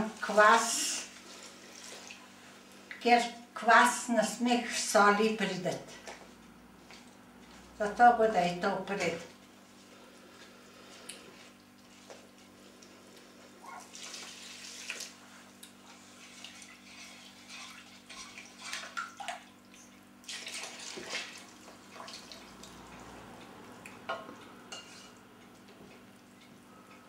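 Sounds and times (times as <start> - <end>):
liquid pouring and splashing: 1.2 - 2.4, 13.8 - 15.3, 16.0 - 23.2.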